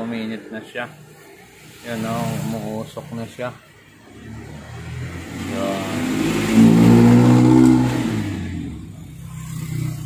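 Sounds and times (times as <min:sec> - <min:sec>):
vehicle engine passing by: 0:04.0 - 0:10.0.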